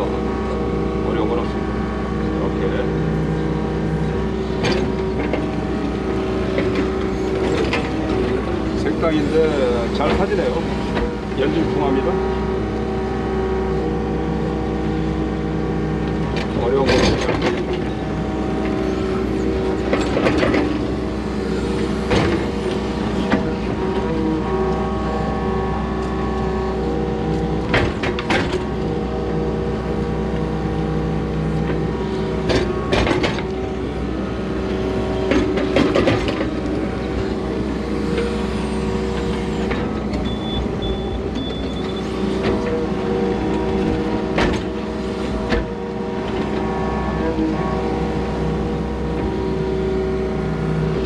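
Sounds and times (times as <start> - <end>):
excavator engine and hydraulics: 0.0 - 51.0
short clanks and knocks: 6.5 - 8.5, 16.3 - 18.0, 32.5 - 33.6.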